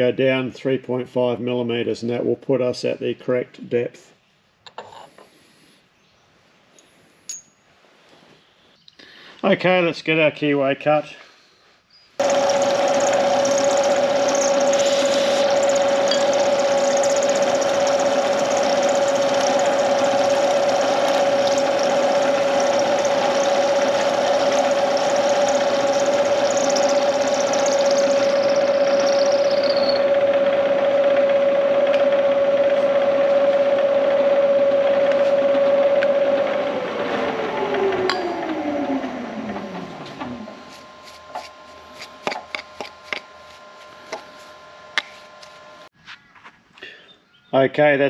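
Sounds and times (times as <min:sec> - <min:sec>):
cutting hiss: 0:12.2 - 0:15.8
milling spindle hum: 0:12.2 - 0:45.9.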